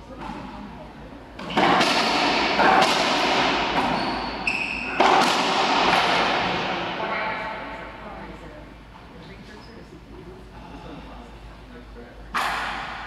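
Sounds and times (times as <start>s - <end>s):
ball striking racquets and walls: 1.4s - 7.6s, 12.4s - 13.0s
sneaker squeak on hardwood floor: 3.8s - 5.0s.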